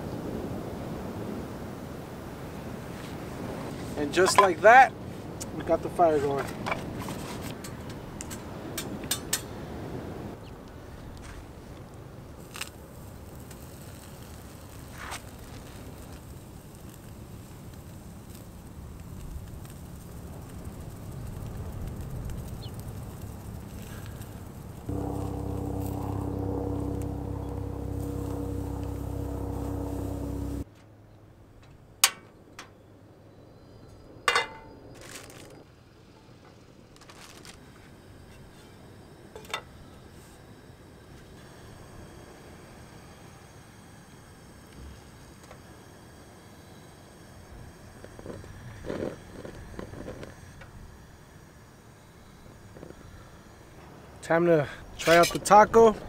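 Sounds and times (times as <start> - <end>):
steady low hum: 0.0 - 35.2, 35.8 - 56.0
low rumble: 24.9 - 30.6
frying pan clinking on grate: 34.3 - 34.7.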